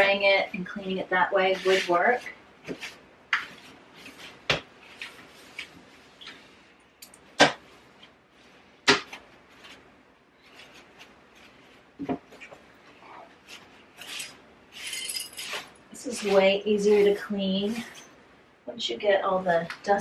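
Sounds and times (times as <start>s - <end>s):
soft wiping: 9.4s - 14.4s.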